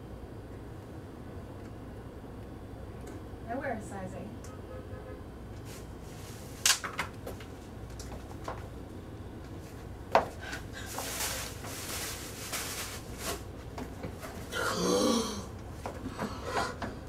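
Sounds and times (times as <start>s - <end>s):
packing paper crinkling: 10.5s - 13.7s.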